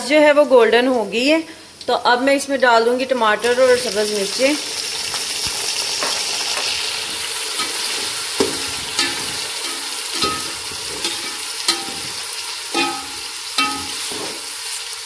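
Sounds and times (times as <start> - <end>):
food sizzling in hot oil: 3.3 - 15.0
metal spatula clinking on pot: 8.5 - 14.3.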